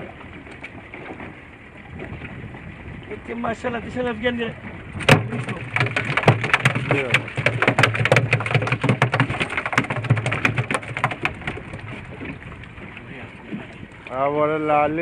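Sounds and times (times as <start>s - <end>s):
outboard motor running: 0.0s - 15.0s
fish slapping on boat deck: 4.9s - 12.8s.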